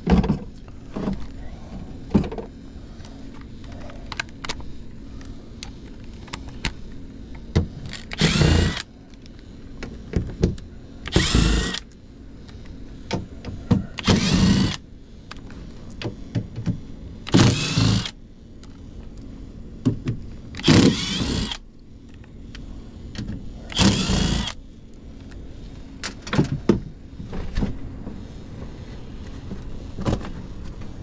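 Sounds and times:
cordless drill whining: 0:07.9 - 0:08.9, 0:11.1 - 0:11.8, 0:14.0 - 0:14.8, 0:17.3 - 0:18.2, 0:20.6 - 0:21.6, 0:23.7 - 0:24.6.

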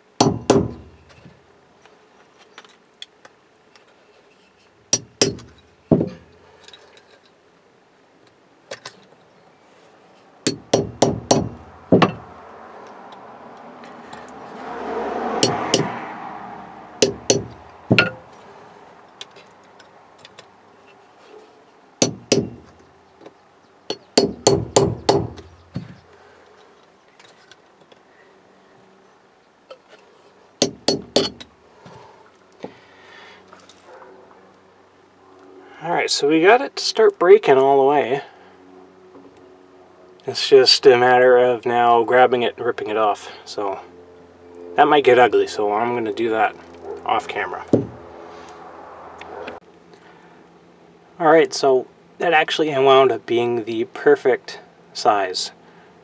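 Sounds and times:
hammer tapping chisel on metal: 0:00.2 - 0:01.0, 0:05.0 - 0:06.2, 0:10.5 - 0:12.3, 0:15.4 - 0:16.0, 0:17.0 - 0:18.2, 0:22.0 - 0:22.7, 0:23.9 - 0:26.0, 0:30.6 - 0:31.5.

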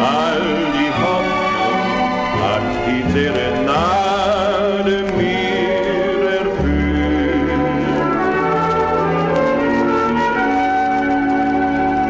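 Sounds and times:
man singing with vibrato: 0:00.0 - 0:08.9
string orchestra chords: 0:00.0 - 0:12.0.

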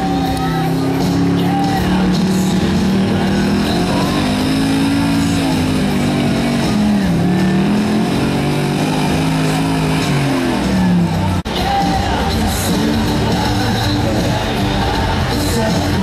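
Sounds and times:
pickup engine revving hard: 0:00.0 - 0:11.4.

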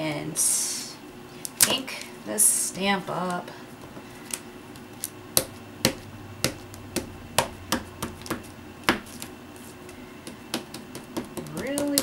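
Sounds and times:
ink pad tapping against stamp: 0:05.4 - 0:09.3, 0:10.2 - 0:12.0.

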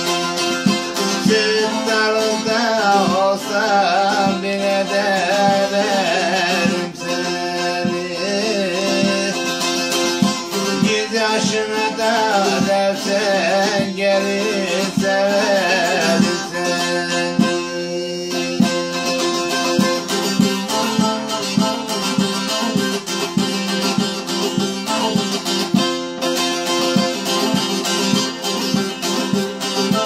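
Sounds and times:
person singing: 0:00.0 - 0:25.4, 0:26.3 - 0:30.0
saz strummed rapidly: 0:00.0 - 0:30.0.

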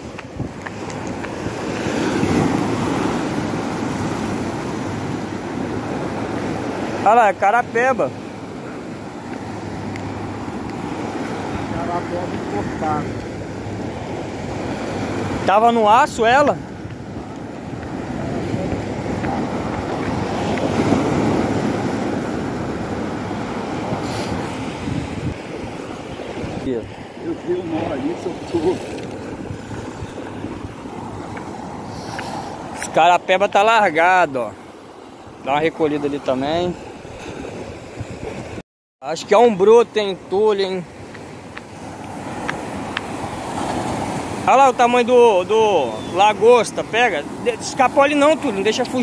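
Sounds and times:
wind buffeting microphone: 0:00.0 - 0:07.0, 0:07.9 - 0:33.0, 0:36.5 - 0:38.6
surf washing over rocks: 0:00.0 - 0:49.0.

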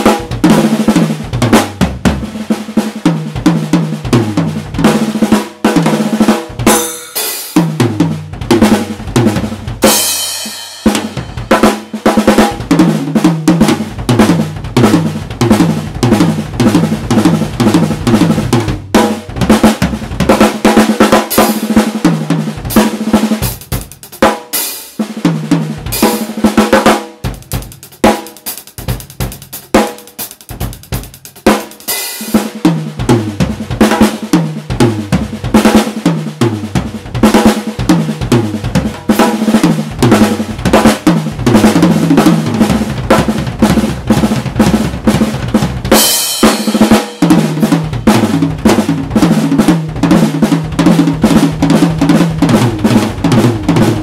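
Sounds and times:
drum kit rolls and fills: 0:00.0 - 0:54.0
cymbal crashes: 0:06.7 - 0:07.6, 0:09.8 - 0:11.9.

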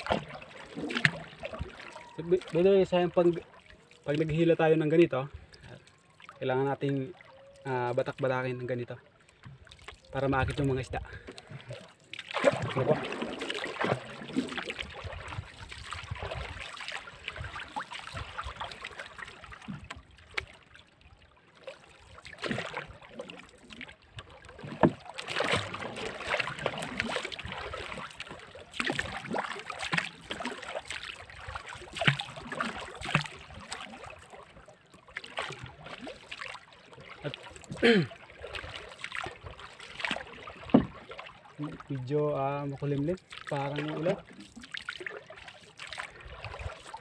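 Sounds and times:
paddle splashing through water: 0:00.0 - 0:47.0
paddle knocking on boat: 0:24.5 - 0:27.1, 0:40.5 - 0:41.2.

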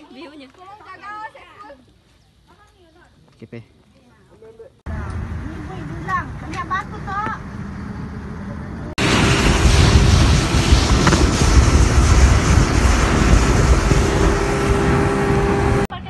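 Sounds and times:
wind buffeting microphone: 0:04.9 - 0:16.0
boat motor running: 0:09.0 - 0:15.9.

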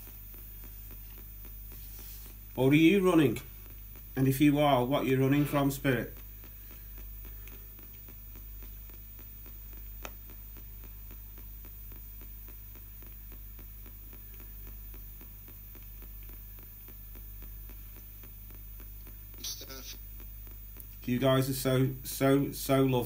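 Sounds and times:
radio static flickering: 0:00.0 - 0:23.0.

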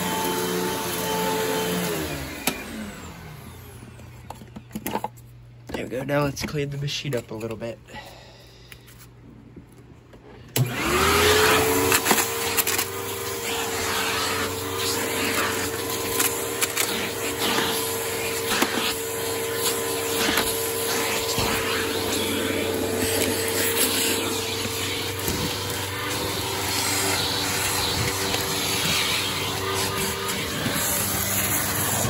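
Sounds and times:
vacuum cleaner motor running: 0:00.0 - 0:04.7, 0:10.6 - 0:32.0
vacuum suction rush: 0:13.1 - 0:32.0.

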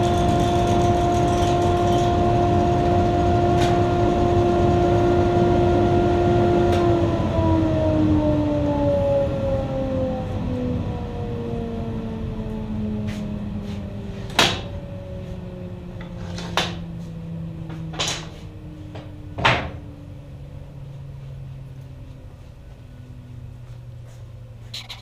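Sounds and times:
table saw winding down: 0:00.0 - 0:06.0.

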